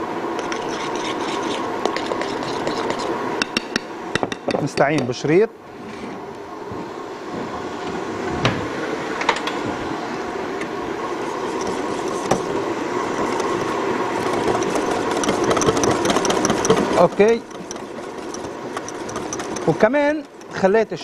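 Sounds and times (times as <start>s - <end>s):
electric mixer motor running: 11.2s - 20.6s
utensil clicks: 13.1s - 20.6s.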